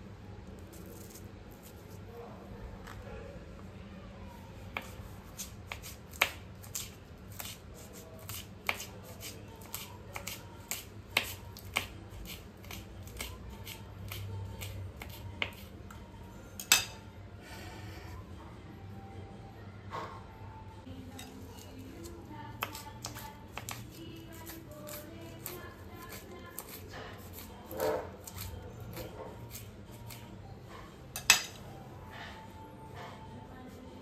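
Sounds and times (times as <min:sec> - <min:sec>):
knife chopping on wooden board: 0:08.2 - 0:15.6.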